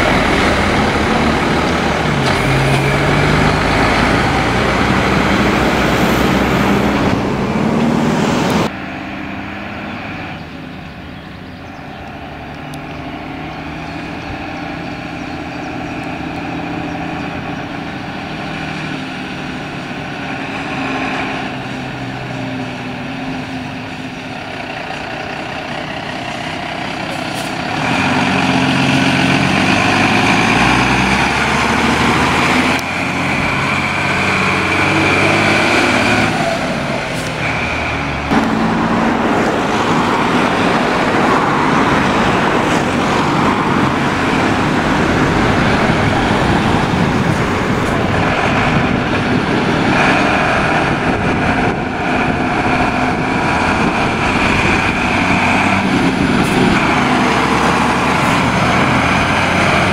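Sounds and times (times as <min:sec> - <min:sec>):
fire truck diesel engine: 0:00.0 - 0:59.9
trucks rumbling past: 0:00.0 - 0:59.9.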